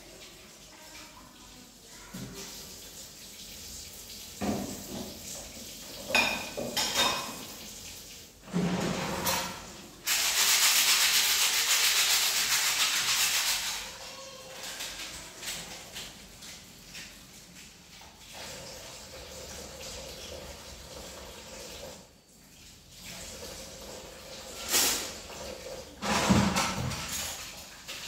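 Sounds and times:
dishes clattering: 5.9s - 7.6s, 8.4s - 9.7s, 26.0s - 28.0s.

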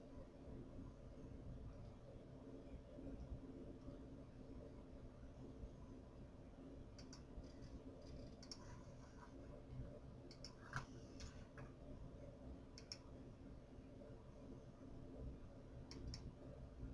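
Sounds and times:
soft clicks: 7.0s - 8.7s, 10.3s - 11.7s, 12.7s - 13.1s, 15.8s - 16.4s.

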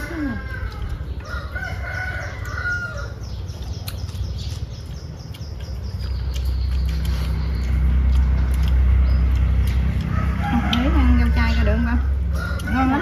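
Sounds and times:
rooster crowing: 0.0s - 3.3s, 10.0s - 11.3s, 12.2s - 13.0s
small birds chirping: 0.0s - 13.0s
vehicle engine rumble: 0.0s - 13.0s.

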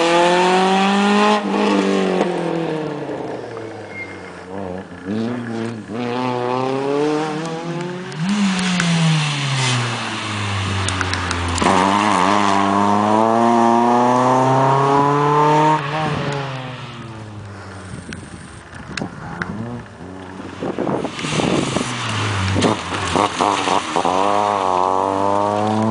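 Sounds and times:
rally car revving through gears: 0.0s - 3.2s, 4.7s - 17.2s, 20.7s - 25.9s
car engine slowing and accelerating: 0.0s - 25.9s.

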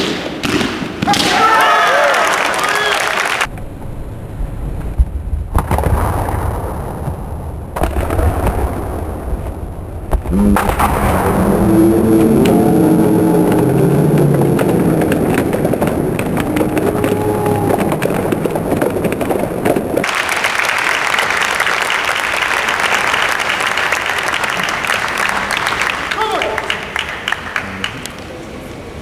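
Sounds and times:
crowd shouting and cheering: 1.0s - 3.5s, 10.3s - 18.8s, 21.8s - 28.0s
crowd applauding: 1.6s - 3.5s, 11.3s - 28.3s.

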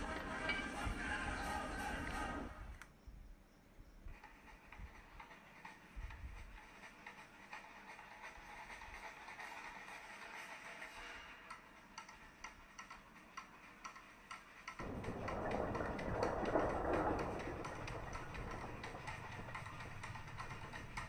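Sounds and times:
fast percussion ticking: 11.8s - 21.0s.

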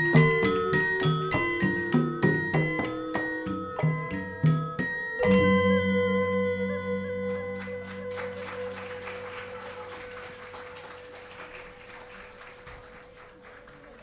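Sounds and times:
gamelan note ringing: 0.0s - 11.8s
audience applauding: 7.2s - 14.0s.

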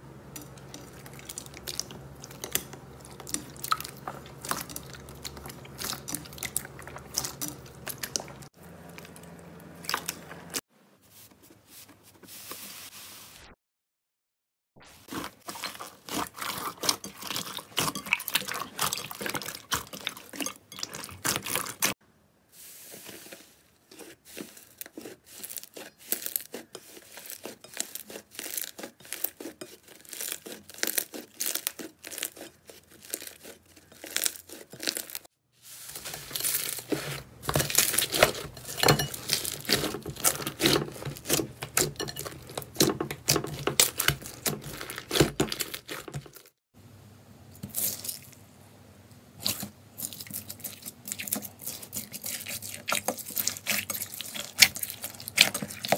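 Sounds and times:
slime crackling and tearing: 24.5s - 35.3s, 36.0s - 41.9s, 43.3s - 46.5s.

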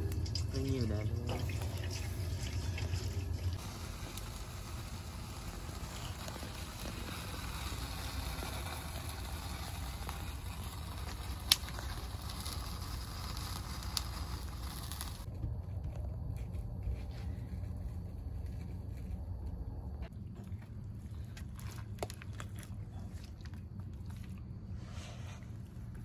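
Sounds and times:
propane burner flame roaring: 0.0s - 20.2s.

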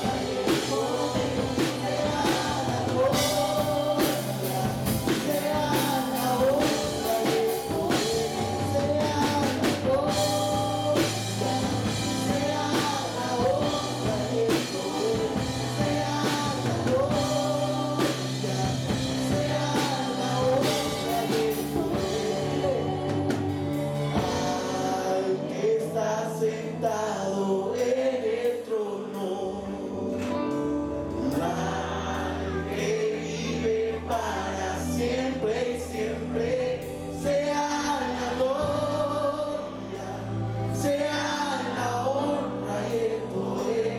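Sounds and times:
drum kit: 0.0s - 25.2s
woman singing: 0.0s - 27.0s
man singing: 0.0s - 43.9s
worship band playing: 0.0s - 43.9s.

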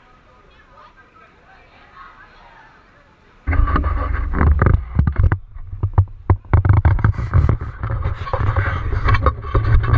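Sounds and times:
microphone handling noise: 3.5s - 9.9s.

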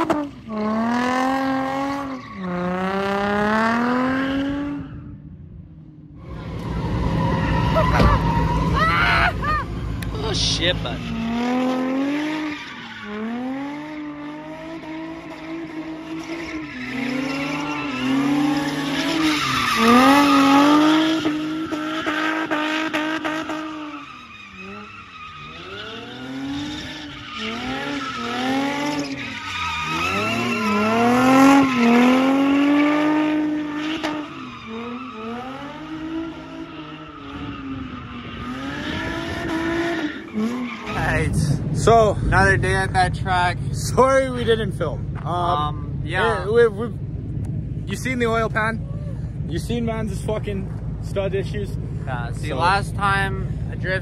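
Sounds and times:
car engine revving high: 0.0s - 5.2s, 6.2s - 54.0s
tyre squeal: 6.2s - 41.3s.

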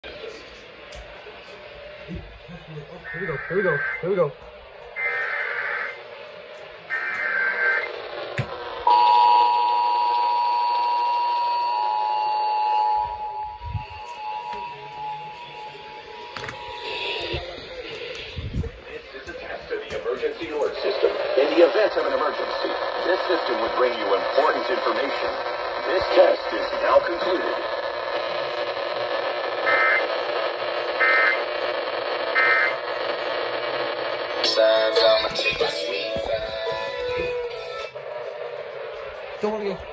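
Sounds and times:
radio static hiss: 0.0s - 8.9s, 13.8s - 39.9s
shrill two-tone alert signal: 8.9s - 17.2s.

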